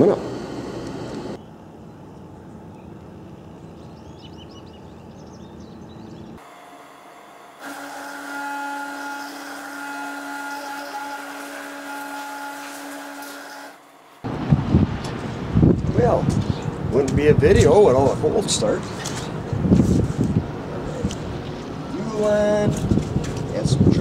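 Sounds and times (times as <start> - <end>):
garage door opener humming: 0.0 - 1.4, 6.3 - 14.4
outdoor rumble: 0.0 - 3.9.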